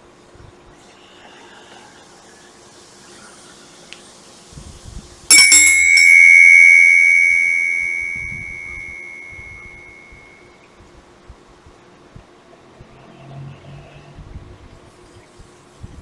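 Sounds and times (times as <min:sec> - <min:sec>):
brass handbell ringing: 0:05.3 - 0:10.2.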